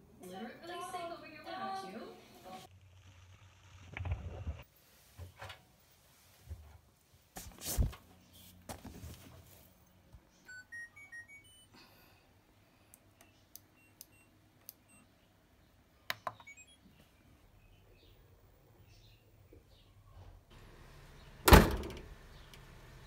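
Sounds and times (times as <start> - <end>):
washing machine door shutting: 21.4 - 22.1.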